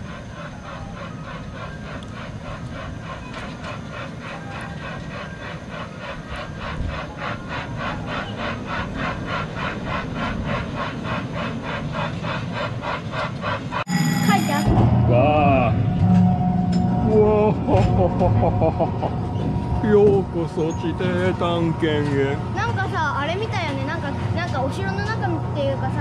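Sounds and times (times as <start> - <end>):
small ride train rhythmic beat: 0.0 - 14.6.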